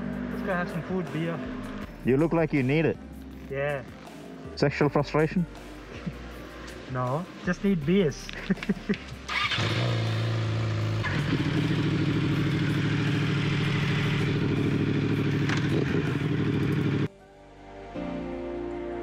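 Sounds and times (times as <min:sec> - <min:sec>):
soft music: 0:00.0 - 0:09.9, 0:16.6 - 0:19.0
motorcycle engine idling: 0:09.3 - 0:17.1.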